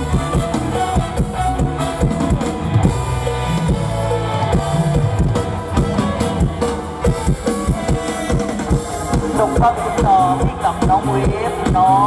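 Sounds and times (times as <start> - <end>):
band playing instrumental music: 0.0 - 12.0
drum kit beat: 0.0 - 12.0.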